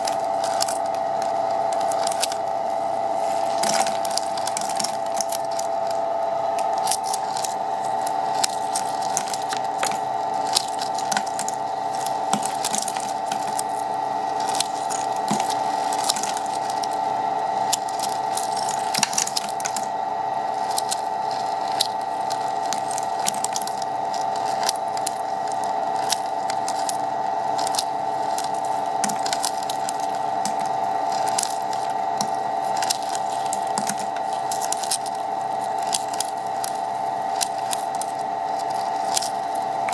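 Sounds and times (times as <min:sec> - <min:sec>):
ice crackling and crunching: 0:00.0 - 0:39.9
ice machine humming: 0:00.0 - 0:39.9.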